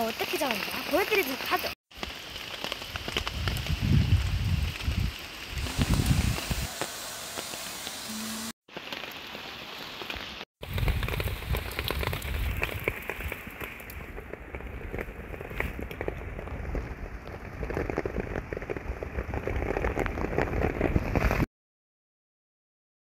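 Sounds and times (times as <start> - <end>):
rain pattering: 0.0 - 21.5.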